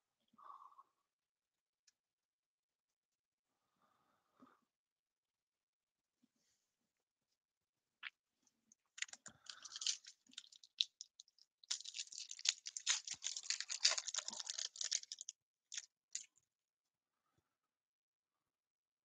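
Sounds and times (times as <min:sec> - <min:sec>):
foil wrapper tearing and crinkling: 0:09.0 - 0:16.3.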